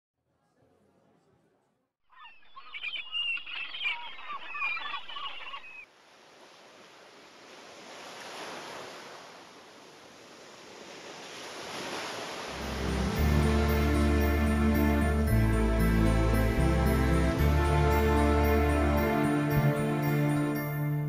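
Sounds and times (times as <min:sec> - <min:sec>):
birds chirping: 0:02.1 - 0:05.9
ocean surf: 0:06.1 - 0:20.7
music: 0:12.5 - 0:21.0.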